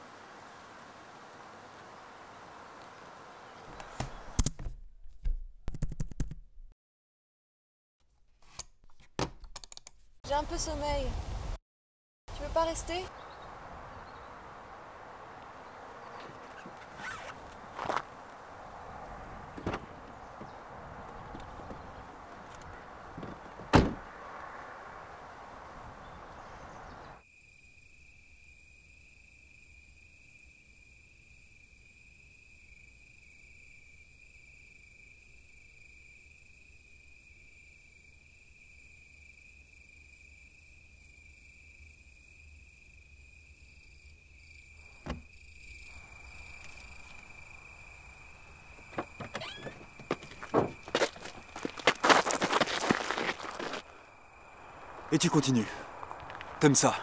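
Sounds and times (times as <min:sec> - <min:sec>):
outdoor background noise: 0:00.0 - 0:05.8, 0:12.3 - 0:57.0
car door shutting: 0:19.5 - 0:20.6, 0:22.5 - 0:24.1, 0:45.0 - 0:45.3, 0:48.8 - 0:51.0.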